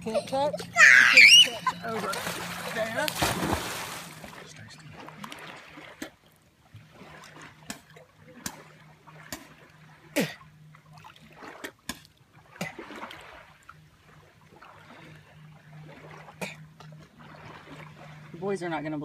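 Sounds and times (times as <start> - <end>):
faint low hum: 0.0 - 19.0
lake water splashing and trickling: 0.0 - 19.0
water plop: 2.0 - 4.4.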